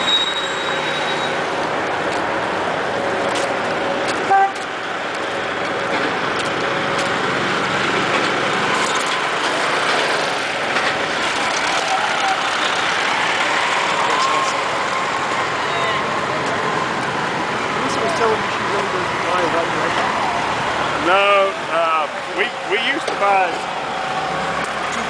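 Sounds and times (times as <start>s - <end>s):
vehicles and machinery noise: 0.0s - 25.0s
short horn beep: 4.2s - 4.6s.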